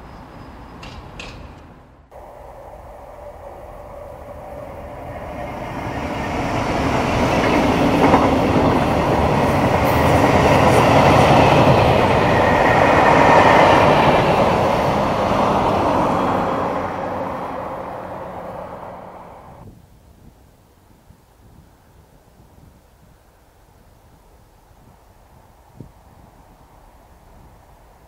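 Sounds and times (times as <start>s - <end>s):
freight train passing: 0.0s - 19.6s
train wheels clattering over rails: 0.7s - 19.6s.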